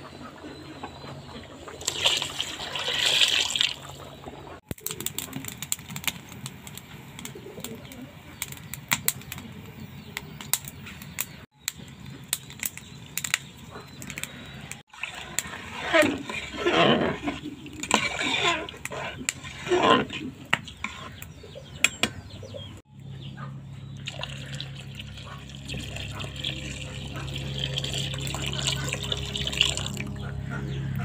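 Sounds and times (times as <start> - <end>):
rice bubbling in a pot: 4.7 - 9.5, 11.5 - 21.1
spoon stirring and sloshing: 14.9 - 21.2.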